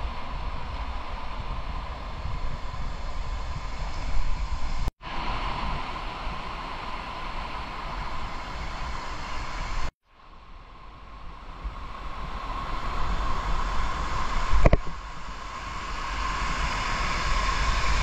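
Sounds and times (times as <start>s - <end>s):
river rushing over cascades: 0.0s - 9.9s
wind rumbling on microphone: 0.0s - 18.0s.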